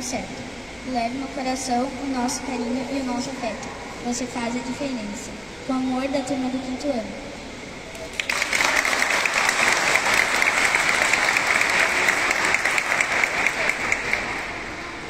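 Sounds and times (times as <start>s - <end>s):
audience applauding: 8.1s - 14.9s.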